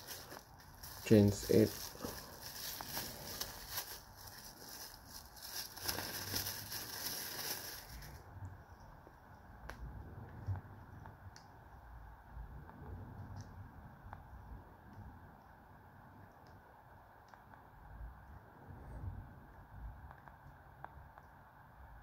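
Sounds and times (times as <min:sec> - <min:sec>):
plastic packaging crinkling: 0:00.0 - 0:08.2.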